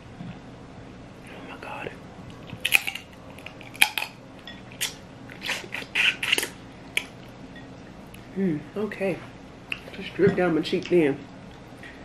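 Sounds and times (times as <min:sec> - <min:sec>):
crab shell cracking and biting: 0:02.6 - 0:04.2.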